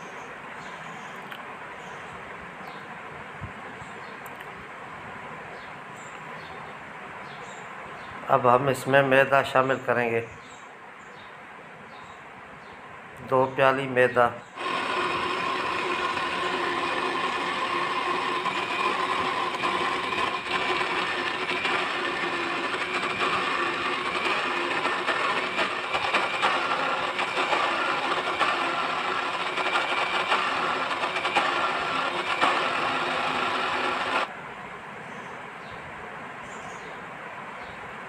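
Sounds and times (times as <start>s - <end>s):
electric blender whirring: 14.6s - 34.3s.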